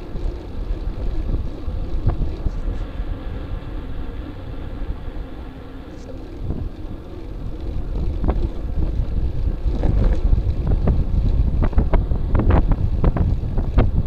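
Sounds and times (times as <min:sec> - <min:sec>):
wind rumbling on microphone: 0:00.0 - 0:14.0
bike clicks and knocks: 0:05.9 - 0:14.0.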